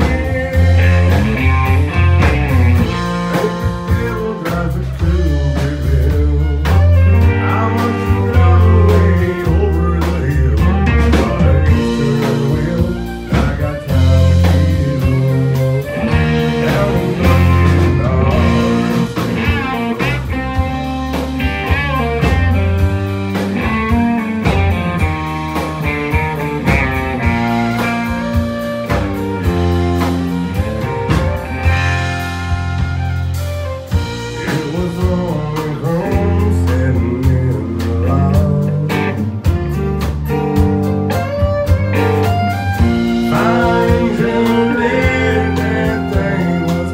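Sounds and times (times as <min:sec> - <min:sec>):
person singing: 0:00.0 - 0:20.3, 0:34.3 - 0:39.5, 0:42.8 - 0:46.9
country band playing: 0:00.0 - 0:46.9.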